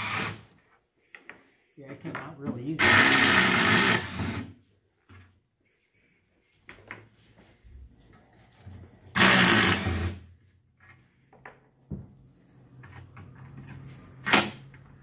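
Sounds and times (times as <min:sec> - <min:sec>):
cordless drill whirring: 0:00.0 - 0:00.4, 0:02.8 - 0:04.5, 0:09.1 - 0:10.2.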